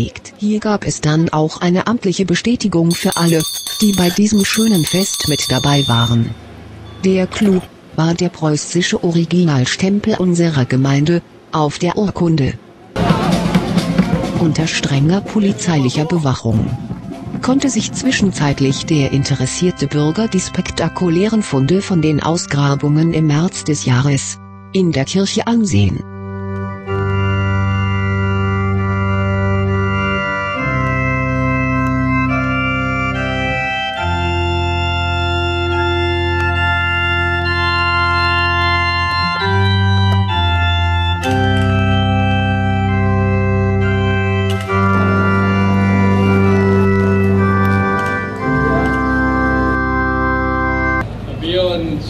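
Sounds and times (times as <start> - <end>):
electronic organ chords: 26.0 - 51.0.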